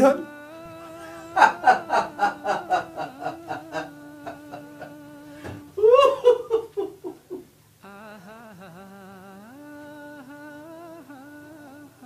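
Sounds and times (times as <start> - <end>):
drawn-out vocal outburst: 0.0 - 6.5.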